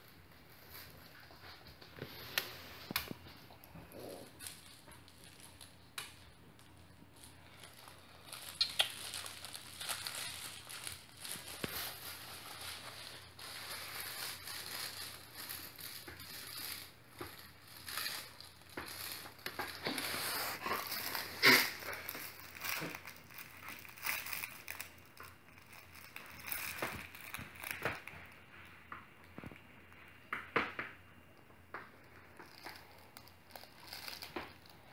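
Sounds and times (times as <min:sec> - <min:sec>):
fabric rustling and crinkling: 0:00.0 - 0:29.6, 0:32.0 - 0:34.9.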